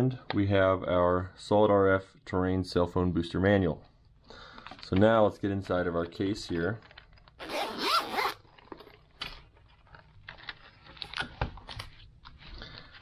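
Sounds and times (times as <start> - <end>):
zipper opening on a case: 7.4 - 8.9.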